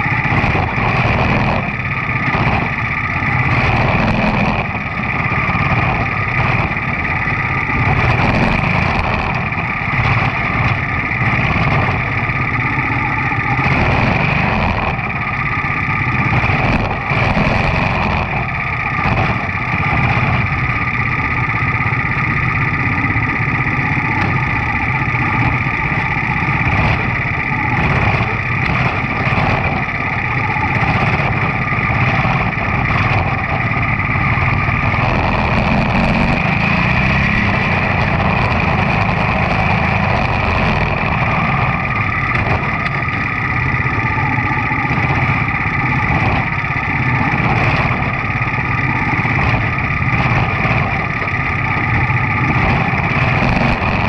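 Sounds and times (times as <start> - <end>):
other small race car engines: 0.0 - 54.0
small race car engine running: 0.0 - 54.0.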